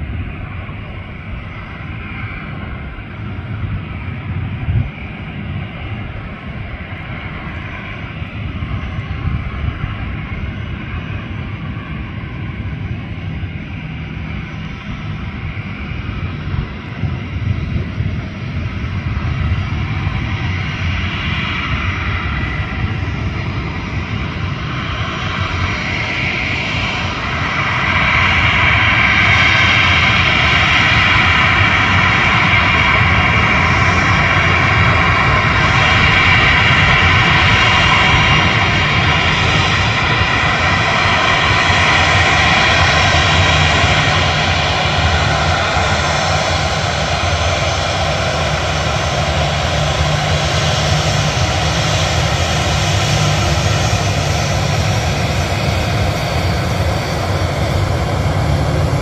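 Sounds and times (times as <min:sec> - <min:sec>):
high turbine whine: 0:00.0 - 0:59.0
propeller drone: 0:00.0 - 0:59.0.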